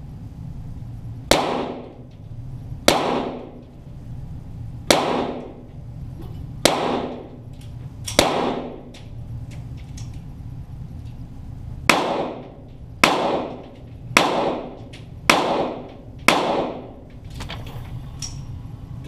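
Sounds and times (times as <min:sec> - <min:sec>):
pistol shots echoing: 0:01.3 - 0:02.0, 0:02.9 - 0:03.6, 0:04.9 - 0:05.6, 0:06.6 - 0:07.4, 0:08.1 - 0:08.9, 0:11.9 - 0:17.0.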